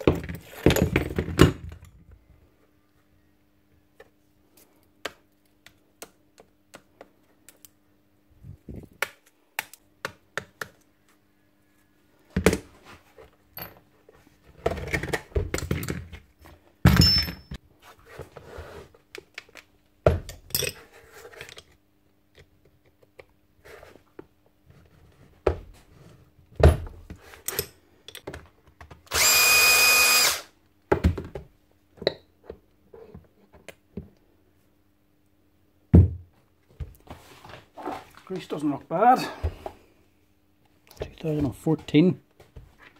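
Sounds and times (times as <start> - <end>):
power tool whining burst: 29.1 - 30.5.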